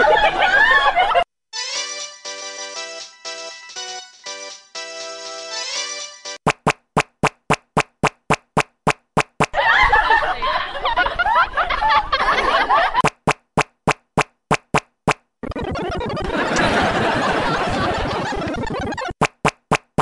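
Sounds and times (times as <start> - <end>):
sharp rapid clicks: 6.5 - 9.6, 13.0 - 16.4, 18.5 - 20.0
high quick snickering laughter: 15.8 - 19.1.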